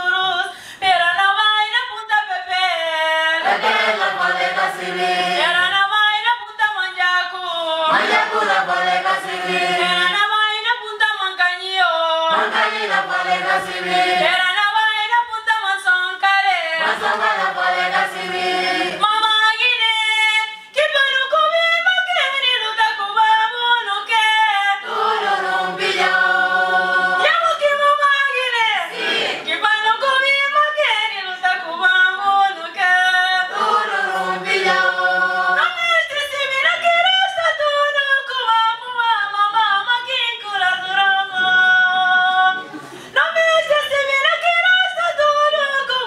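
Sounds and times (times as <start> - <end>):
choir singing unaccompanied: 3.4 - 5.7, 7.9 - 10.2, 12.3 - 14.5, 16.8 - 19.1, 24.8 - 27.3, 28.9 - 29.6, 33.4 - 35.7.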